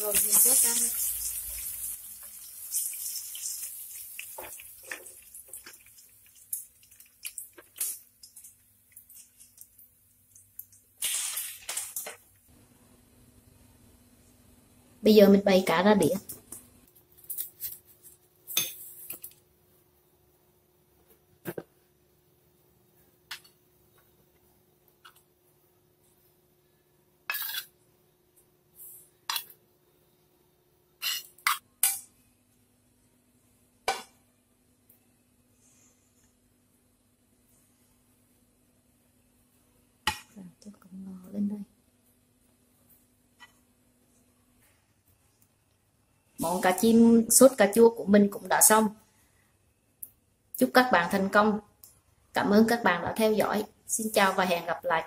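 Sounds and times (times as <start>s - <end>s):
oil sizzling in a frying pan: 0.0s - 12.2s
metal spoon scraping a pan: 27.3s - 27.8s, 31.0s - 32.0s.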